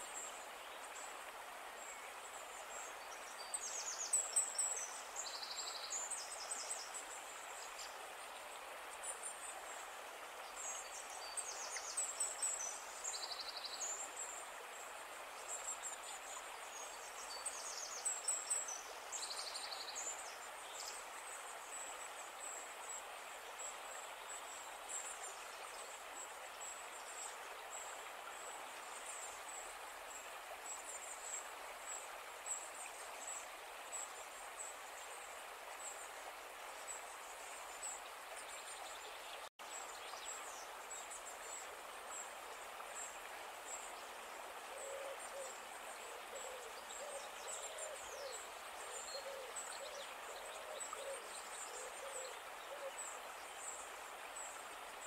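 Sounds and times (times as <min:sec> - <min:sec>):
steady hiss: 0:00.0 - 0:55.0
small birds trilling and chirping: 0:43.7 - 0:55.0.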